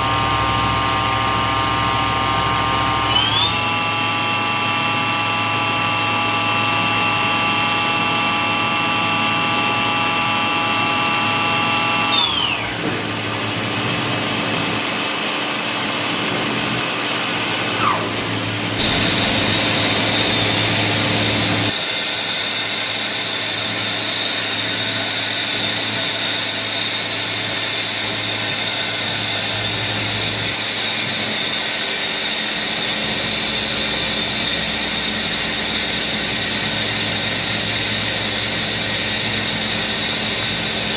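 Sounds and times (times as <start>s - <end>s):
machine spindle whine: 0.0s - 40.9s
higher steady whine: 17.7s - 21.7s.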